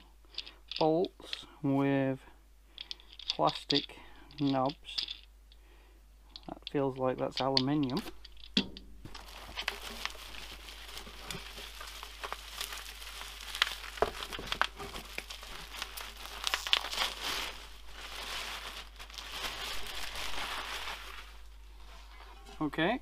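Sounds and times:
plastic wrap crinkling: 7.2s - 22.4s
hands rummaging in cardboard box: 7.6s - 21.3s.

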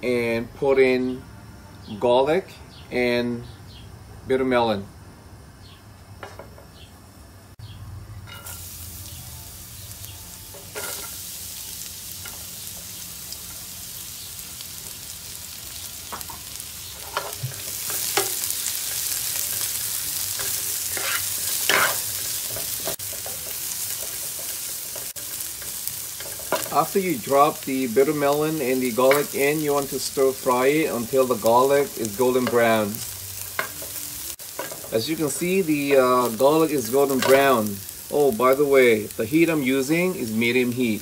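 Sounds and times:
vegetables sizzling in oil: 8.2s - 41.0s.

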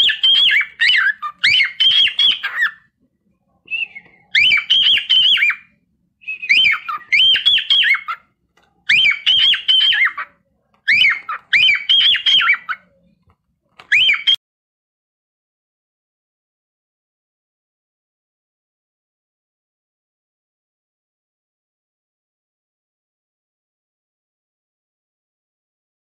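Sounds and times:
cockatiel chirping: 0.0s - 2.9s, 3.7s - 13.2s, 13.8s - 14.4s.

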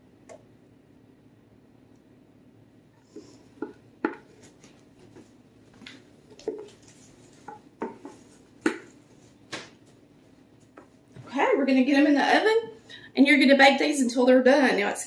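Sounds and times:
spatula scraping and knocking bowl: 3.1s - 5.3s, 6.4s - 9.0s.

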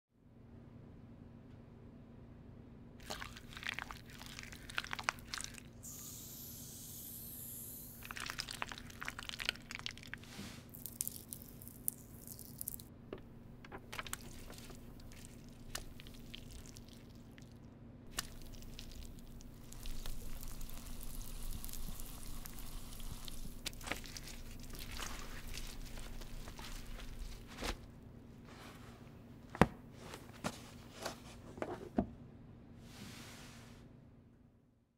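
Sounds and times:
sheet mask squishing and crackling: 3.0s - 5.8s, 8.0s - 28.5s
high hiss: 5.8s - 8.0s
steady low hum: 11.4s - 32.8s.

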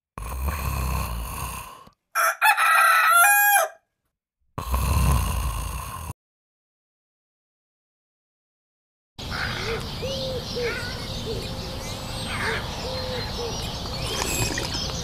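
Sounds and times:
rooster crowing: 2.2s - 3.9s.

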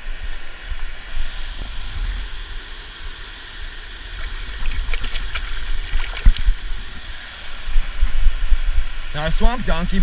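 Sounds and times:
water trickling and splashing: 4.1s - 7.2s.

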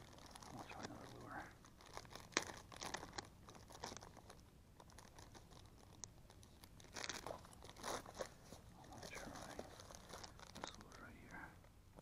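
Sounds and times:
fishing tackle clicking and crinkling: 0.0s - 12.0s
rustling: 0.0s - 12.0s.

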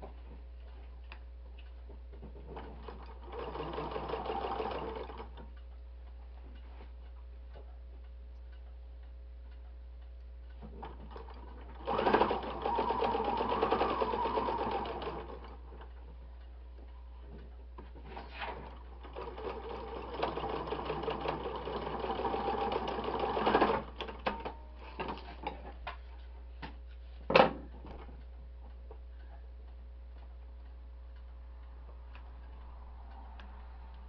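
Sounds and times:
sewing machine stitching: 2.2s - 5.4s, 10.6s - 15.9s, 18.0s - 25.2s.

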